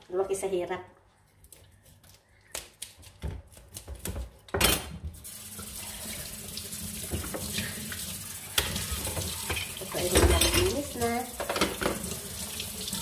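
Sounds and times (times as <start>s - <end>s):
tap water running into sink: 5.1s - 13.0s.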